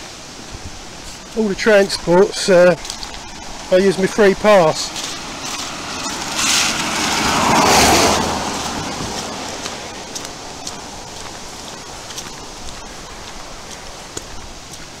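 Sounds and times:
tyres hissing on wet road: 0:00.0 - 0:15.0
car driving past: 0:04.8 - 0:11.2.

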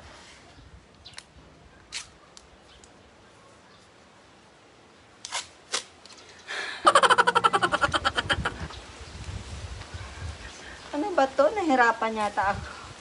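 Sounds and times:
tape ripping off roll: 0:05.2 - 0:06.2.

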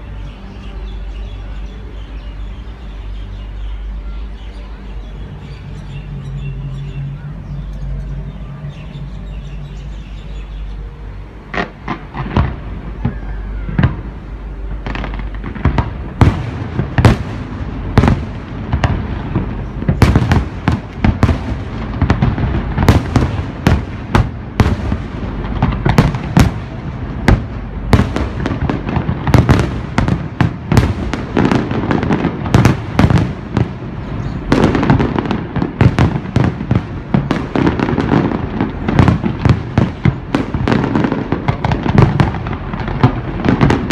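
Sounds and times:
fireworks crackling: 0:00.0 - 0:43.9
fireworks bursting: 0:11.4 - 0:43.9.

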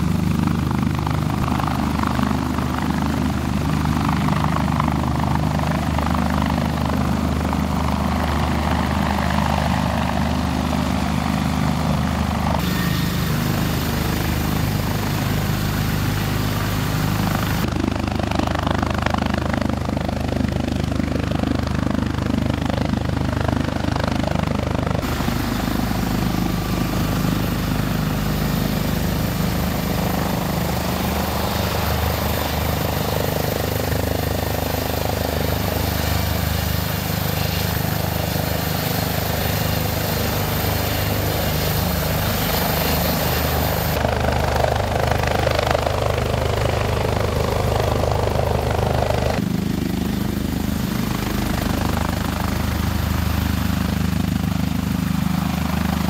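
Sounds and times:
helicopter rotors beating: 0:00.0 - 0:56.0
turbine noise: 0:07.3 - 0:17.7, 0:24.8 - 0:44.7.

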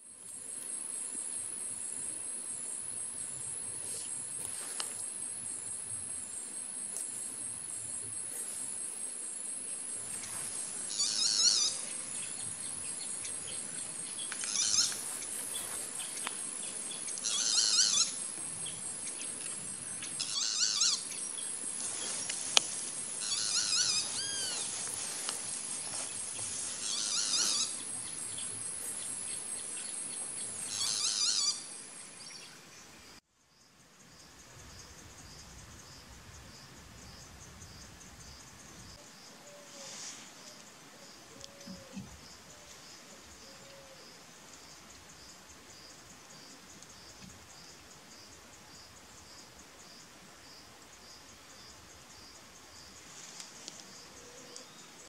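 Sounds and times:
night insects droning: 0:00.0 - 0:55.0
quiet forest background: 0:00.0 - 0:55.0
bird's rough call: 0:26.8 - 0:27.8.

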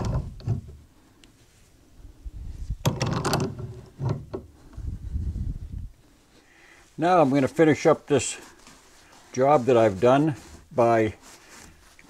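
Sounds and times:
pipe wrench clunking and scraping: 0:00.0 - 0:00.8, 0:02.8 - 0:04.8.

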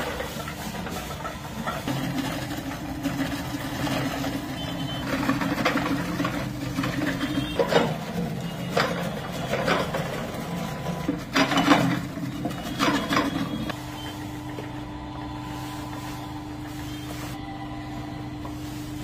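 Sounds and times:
onions crunching and clattering: 0:00.0 - 0:13.8
electric chopper motor humming: 0:00.0 - 0:19.0.

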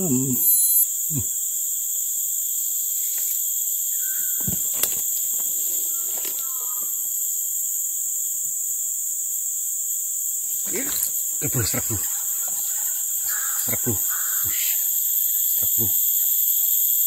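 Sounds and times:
insects droning: 0:00.0 - 0:17.0
short whistles: 0:00.3 - 0:00.9.

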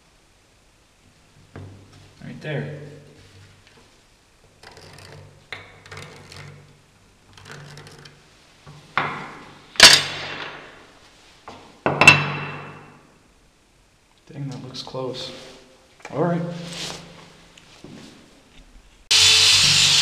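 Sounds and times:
objects knocking on wooden workbench: 0:09.0 - 0:09.4.

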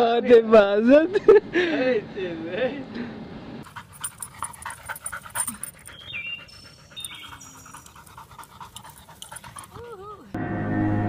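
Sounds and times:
dog panting: 0:03.6 - 0:10.3
dog squeaking: 0:03.7 - 0:10.3.

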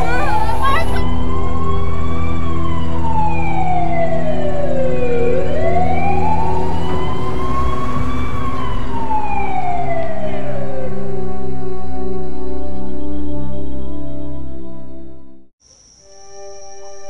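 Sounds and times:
ambulance siren wailing: 0:00.0 - 0:12.2.

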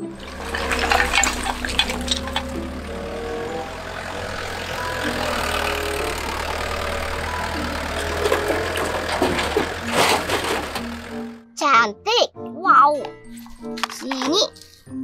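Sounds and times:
excavator diesel engine: 0:00.0 - 0:11.5.

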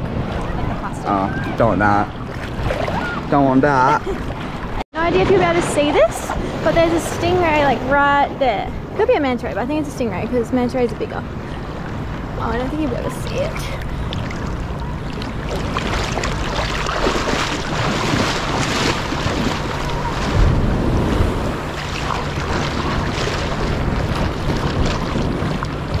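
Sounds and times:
waves sloshing in shallows: 0:00.0 - 0:26.0
wind buffeting microphone: 0:00.0 - 0:26.0.

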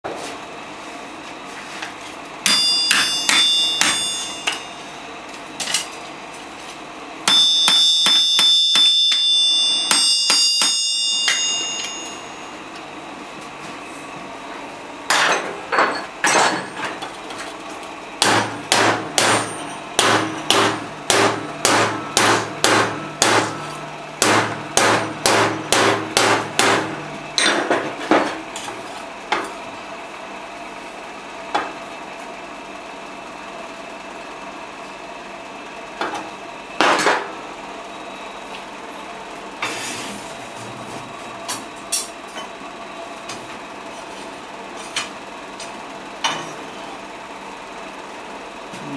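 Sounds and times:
hammer striking steel on anvil: 0:02.4 - 0:04.8, 0:07.2 - 0:12.5, 0:15.1 - 0:16.6, 0:18.2 - 0:28.4.

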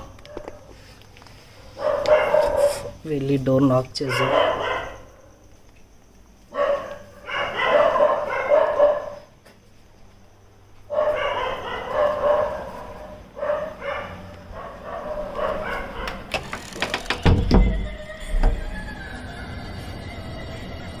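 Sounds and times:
dog barking and whining: 0:01.6 - 0:03.0, 0:04.0 - 0:05.3, 0:06.5 - 0:09.3, 0:10.9 - 0:16.3.

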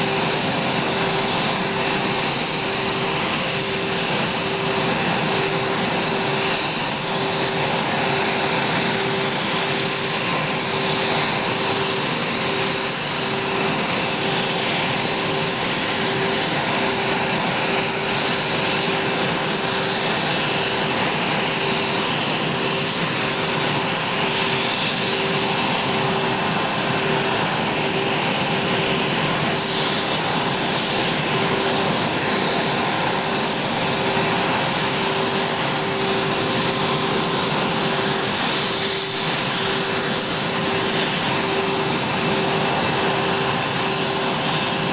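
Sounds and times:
turbine engine whine: 0:00.0 - 0:44.9.

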